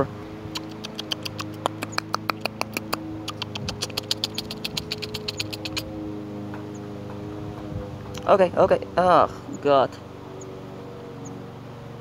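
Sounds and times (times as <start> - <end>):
low hum: 0.0 - 12.0
lip-smacking clicks: 0.5 - 5.9.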